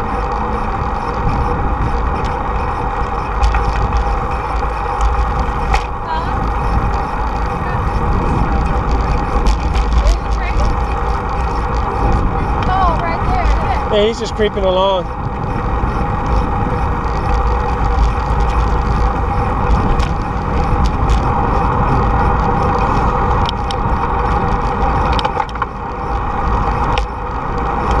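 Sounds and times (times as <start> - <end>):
freeway traffic noise: 0.0 - 28.0
wind rushing over microphone: 0.0 - 28.0.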